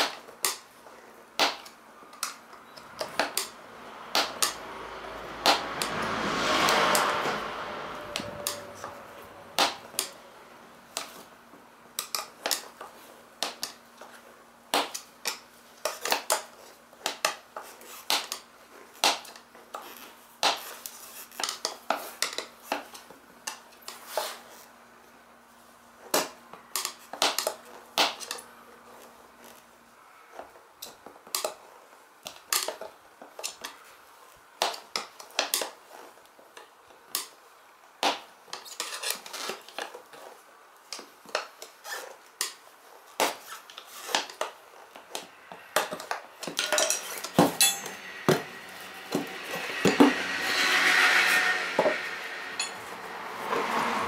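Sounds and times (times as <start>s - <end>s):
metal tyre levers clinking on rim: 46.5s - 48.1s.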